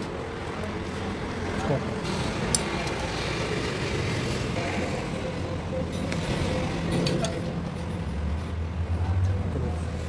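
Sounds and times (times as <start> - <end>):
low engine-like hum: 0.0 - 10.0.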